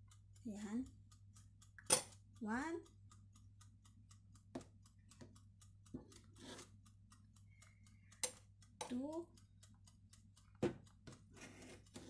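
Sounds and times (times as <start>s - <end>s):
scoop scraping bowl: 6.3s - 6.7s.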